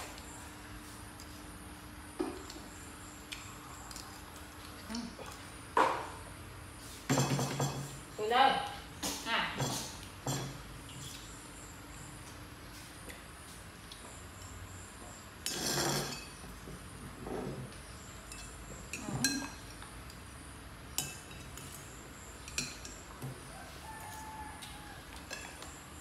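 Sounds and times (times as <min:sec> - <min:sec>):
spoons clinking on plates: 0:07.1 - 0:08.0, 0:09.1 - 0:11.0, 0:15.4 - 0:16.4, 0:18.2 - 0:19.8, 0:21.0 - 0:21.8, 0:22.4 - 0:23.1, 0:25.2 - 0:25.8.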